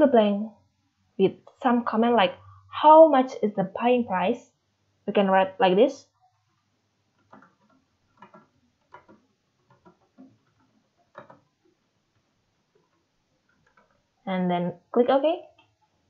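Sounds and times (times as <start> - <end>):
computer keyboard typing: 7.2 - 11.5, 12.7 - 14.0.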